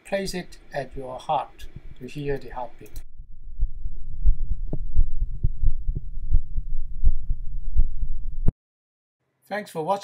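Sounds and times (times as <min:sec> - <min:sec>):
heartbeat thumps: 0:01.6 - 0:02.1, 0:03.0 - 0:08.5
sharp click: 0:02.8 - 0:03.1
low rumble: 0:03.0 - 0:08.5.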